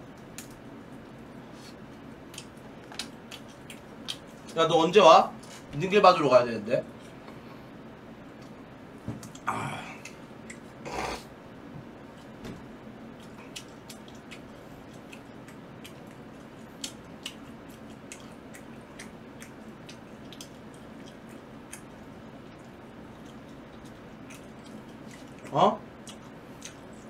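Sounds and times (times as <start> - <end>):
faint steady hum: 0.0 - 27.0
wet chewing with smacks: 1.7 - 4.6, 13.1 - 27.0.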